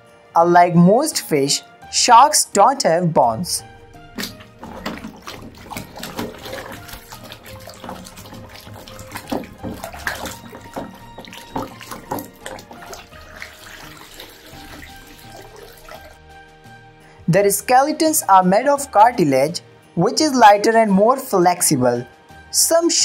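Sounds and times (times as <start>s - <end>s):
quiet background music: 0.0s - 23.0s
water sloshing in a plastic tub: 3.5s - 16.2s.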